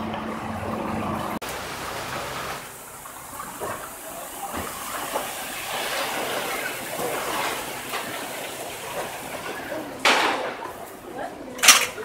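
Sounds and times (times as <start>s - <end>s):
faint voices of passers-by: 3.2s - 12.0s.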